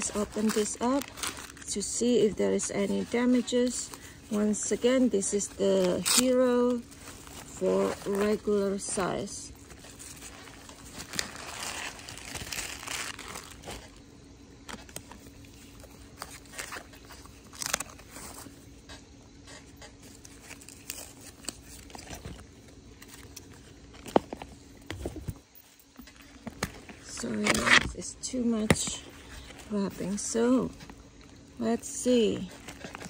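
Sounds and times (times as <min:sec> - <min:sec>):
tape peeling: 0:00.0 - 0:08.8, 0:09.6 - 0:14.0, 0:14.6 - 0:24.5
tissue paper crinkling: 0:00.0 - 0:14.1, 0:14.7 - 0:18.6.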